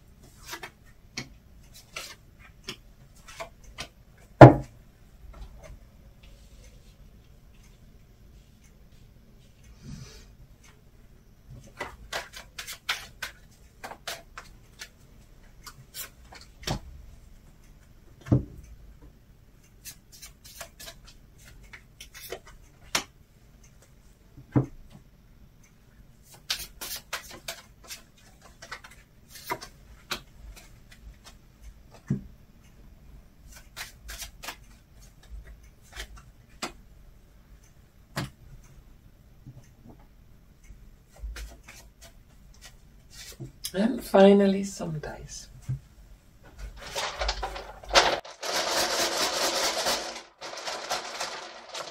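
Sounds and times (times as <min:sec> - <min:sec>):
cards flicking and rubbing: 0:33.5 - 0:35.2.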